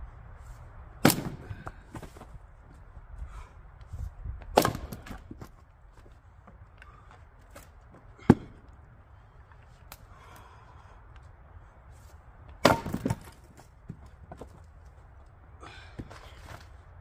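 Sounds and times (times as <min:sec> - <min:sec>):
axe chopping wood: 0:01.0 - 0:02.2, 0:04.5 - 0:05.5, 0:08.2 - 0:08.7, 0:12.6 - 0:13.6.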